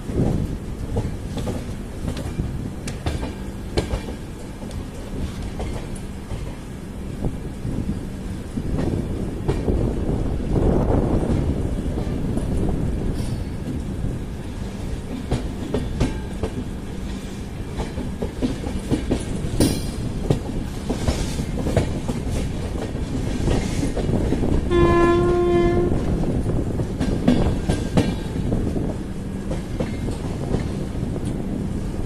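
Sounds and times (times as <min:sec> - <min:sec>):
train rumble: 0:00.0 - 0:32.0
train wheels clacking over rail joints: 0:00.2 - 0:06.6, 0:14.7 - 0:31.4
train horn: 0:24.6 - 0:26.2.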